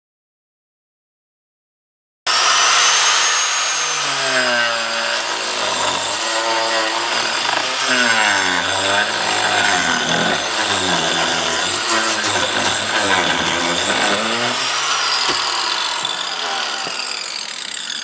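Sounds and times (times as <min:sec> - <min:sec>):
power saw cutting wood: 0:02.3 - 0:18.0.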